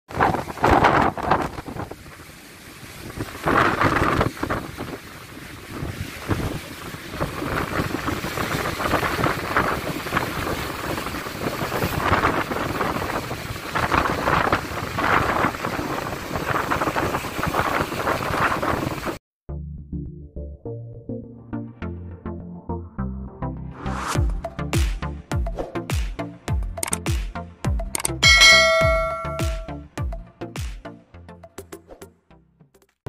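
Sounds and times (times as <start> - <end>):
wind buffeting microphone: 0.1 - 19.2
waves crashing on rocks: 0.2 - 19.2.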